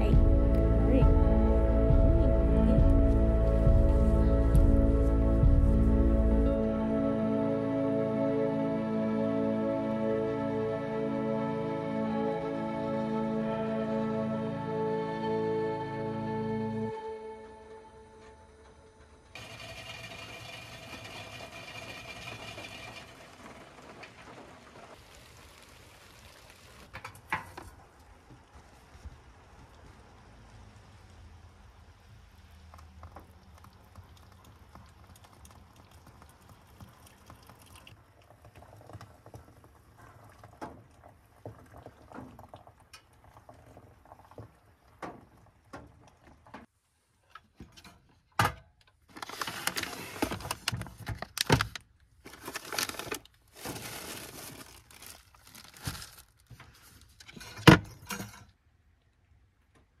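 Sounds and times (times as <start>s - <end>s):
hot water trickling over coffee grounds: 19.4s - 46.5s, 52.2s - 57.3s.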